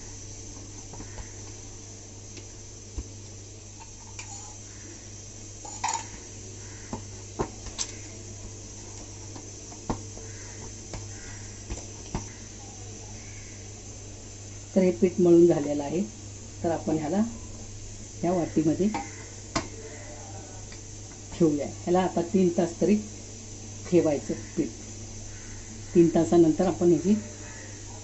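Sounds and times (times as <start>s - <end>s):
dough kneaded on metal plate: 5.7s - 13.6s.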